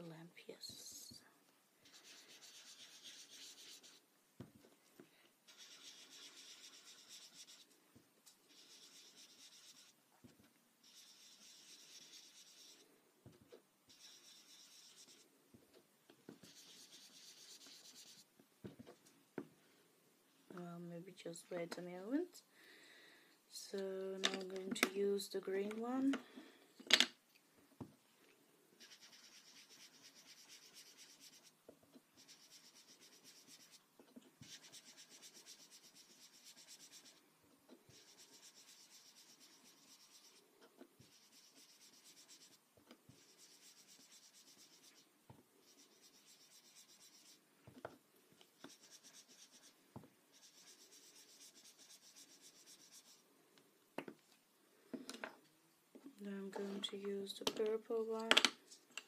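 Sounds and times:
foam dauber rubbing on paper: 1.8s - 4.0s, 5.5s - 7.7s, 8.5s - 10.0s, 10.8s - 12.9s, 13.9s - 15.2s, 16.4s - 18.3s, 28.8s - 31.6s, 32.2s - 33.8s, 34.4s - 37.2s, 37.9s - 47.4s, 48.6s - 53.2s.

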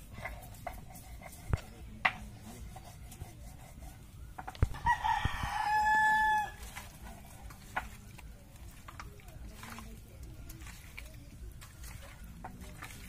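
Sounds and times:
rooster crowing: 4.6s - 6.7s.

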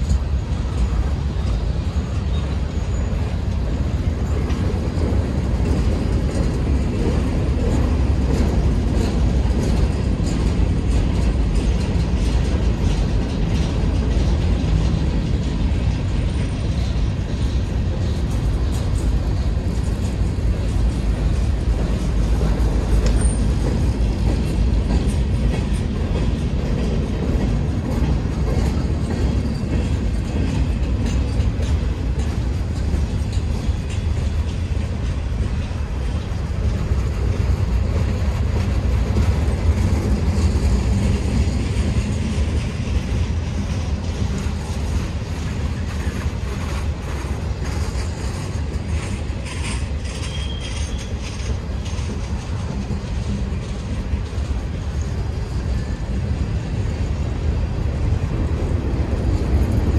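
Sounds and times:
clattering train cars: 0.0s - 59.9s
freight train wheels rumbling: 0.0s - 59.9s.

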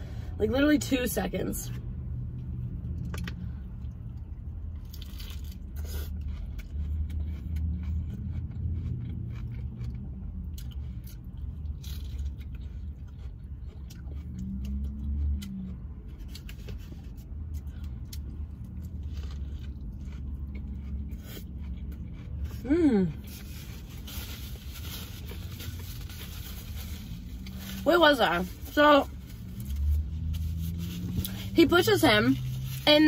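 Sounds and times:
steady low rumble: 0.0s - 33.0s
biting and chewing burger: 2.3s - 27.8s
person humming mmm: 22.6s - 23.2s.

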